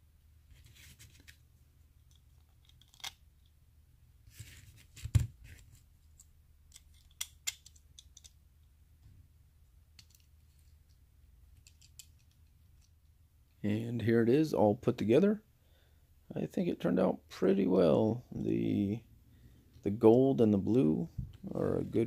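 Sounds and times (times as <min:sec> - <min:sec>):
small metal and plastic parts clicking: 0:02.0 - 0:03.5, 0:06.2 - 0:08.4, 0:10.0 - 0:13.0.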